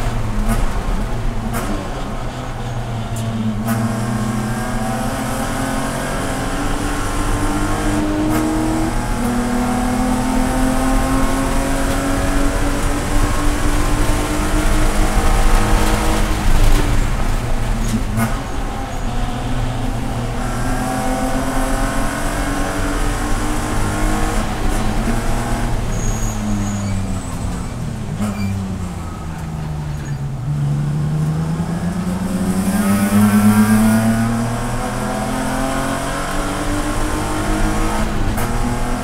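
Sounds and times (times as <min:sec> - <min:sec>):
race car engine at full throttle: 0:00.0 - 0:39.0
road and drivetrain rumble: 0:00.0 - 0:39.0.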